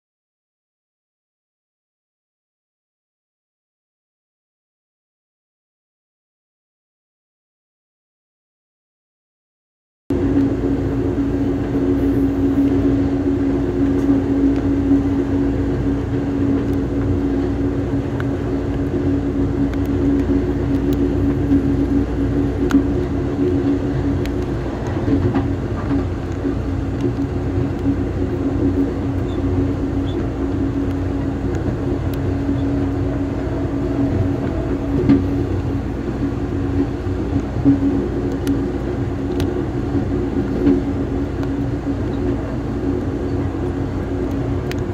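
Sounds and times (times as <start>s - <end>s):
train wheels rumbling on rail: 10.1s - 44.9s.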